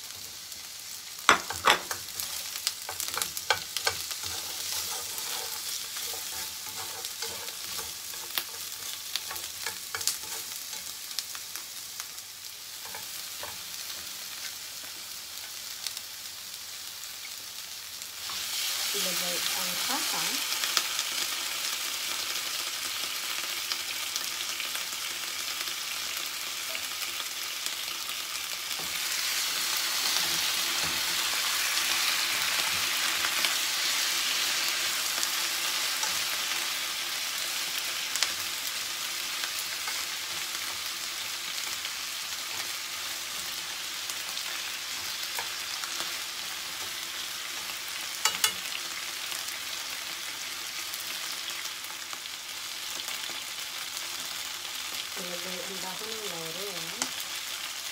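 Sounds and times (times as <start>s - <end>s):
meat and onions sizzling in pan: 0.0s - 57.9s
chopsticks stirring: 1.3s - 11.0s.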